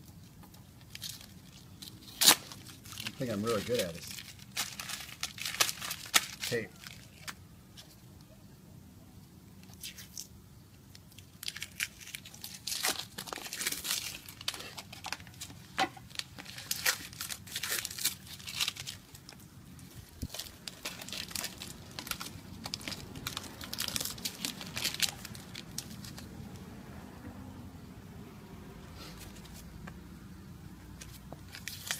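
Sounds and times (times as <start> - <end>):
adhesive tape ripping off: 0.8 - 7.4, 9.6 - 10.3, 10.9 - 15.5, 16.1 - 26.3, 31.0 - 31.9.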